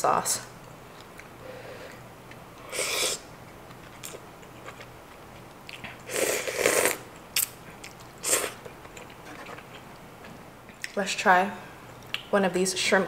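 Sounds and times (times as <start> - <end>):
person slurping noodles: 2.6 - 3.2, 6.1 - 7.0, 8.2 - 8.6.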